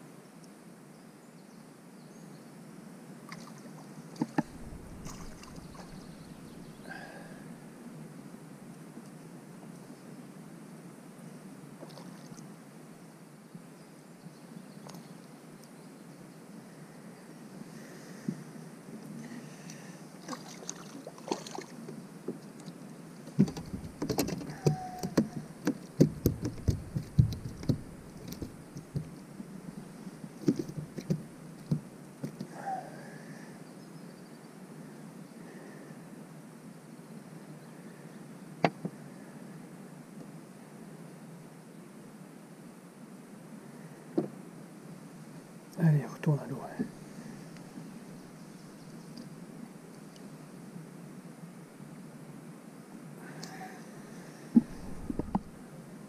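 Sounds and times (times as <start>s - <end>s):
water lapping around boat: 3.3s - 7.1s, 19.6s - 21.8s, 22.6s - 29.2s, 54.6s - 55.6s
fish flapping on plastic deck: 23.4s - 29.1s, 30.4s - 32.5s.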